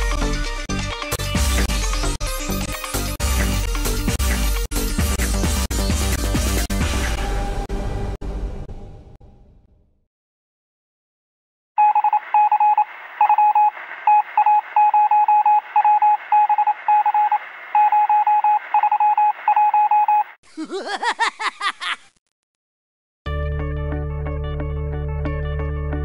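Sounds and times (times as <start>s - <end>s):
music: 0.0s - 9.7s, 23.3s - 26.0s
electronic beeps: 11.8s - 20.4s.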